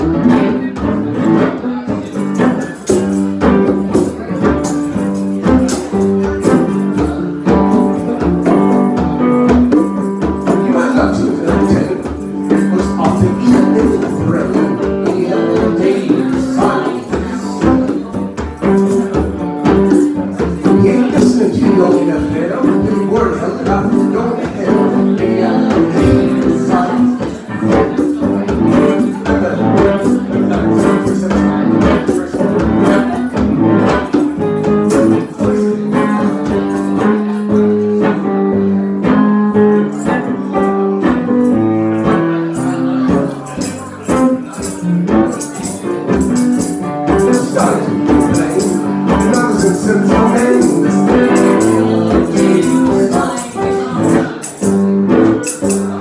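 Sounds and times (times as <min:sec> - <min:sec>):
congas: 0:00.0 - 0:56.0
electric guitar: 0:00.0 - 0:56.0
voices singing: 0:10.5 - 0:18.2, 0:20.6 - 0:33.4, 0:47.1 - 0:54.8.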